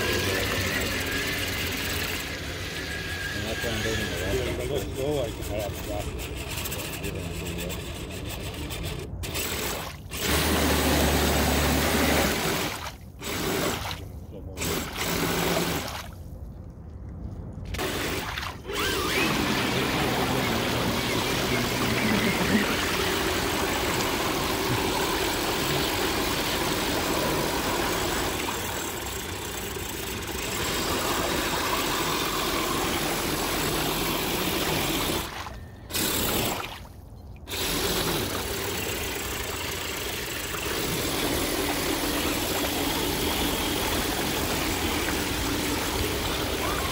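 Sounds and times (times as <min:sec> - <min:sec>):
electric motors whining: 0:00.0 - 0:13.8, 0:17.7 - 0:36.7, 0:37.5 - 0:46.9
tyres splashing through muddy water: 0:17.7 - 0:46.9.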